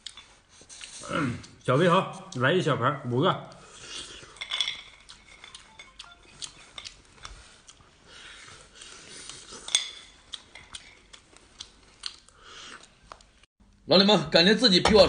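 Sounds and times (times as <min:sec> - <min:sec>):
shells clinking on ceramic plate: 0:04.4 - 0:06.0
utensil clinking on plate: 0:04.4 - 0:06.0.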